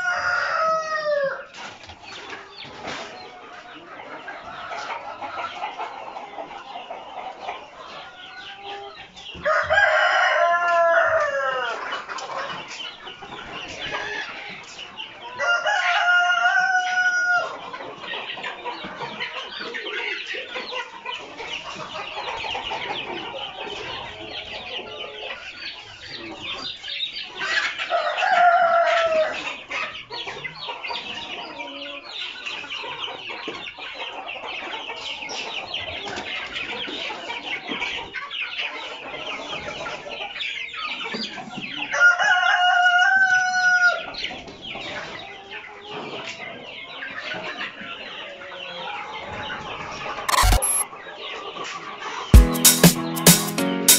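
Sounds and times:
roosters crowing: 0.0s - 1.5s, 8.7s - 12.0s, 15.3s - 17.6s, 41.9s - 44.0s
chickens clucking: 0.0s - 53.9s.

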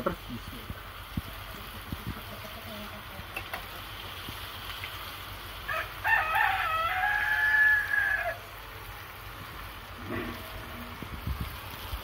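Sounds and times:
rooster crowing: 5.7s - 8.5s.

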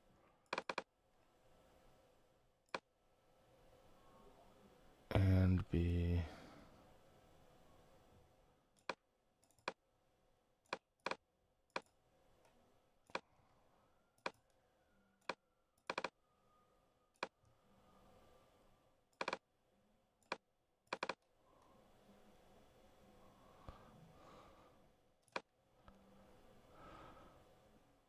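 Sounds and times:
computer mouse clicking: 0.4s - 0.9s, 15.2s - 16.2s, 19.1s - 19.4s, 20.2s - 21.2s.

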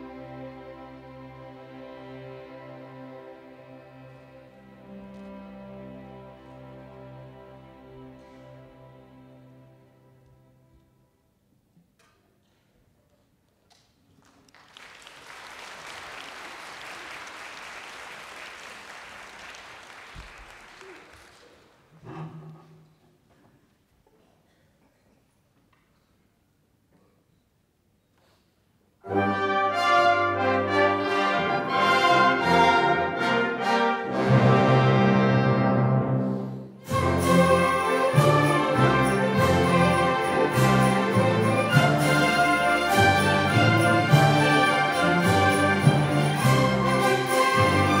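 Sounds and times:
orchestra playing loud chords: 0.0s - 10.1s, 29.0s - 48.0s
audience applause: 14.2s - 22.1s.

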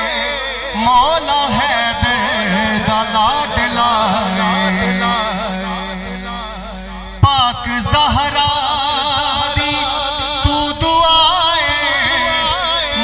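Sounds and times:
man singing wordless melody: 0.0s - 13.0s
held low drone note: 1.4s - 11.1s.

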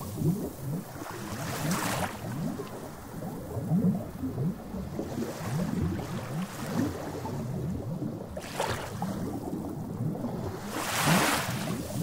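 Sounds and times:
seawater lapping and sloshing: 0.0s - 12.0s
water splash: 8.4s - 9.3s, 10.5s - 12.0s.

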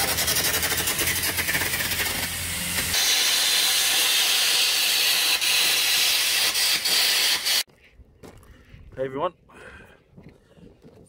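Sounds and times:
loud steady hiss of arc gouging: 0.0s - 7.7s.

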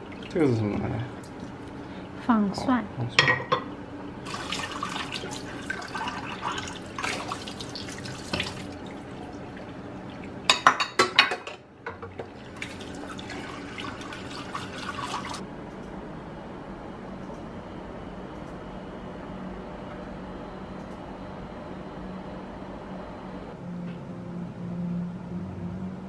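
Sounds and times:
dishes clattering: 3.2s - 3.8s, 10.5s - 12.4s
tap water running into sink: 4.2s - 10.7s, 11.9s - 15.4s.

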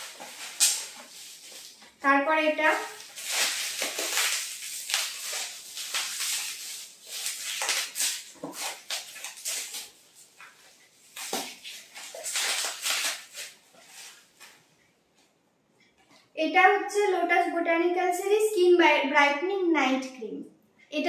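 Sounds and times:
plastic wrapping crinkling: 0.0s - 14.6s.

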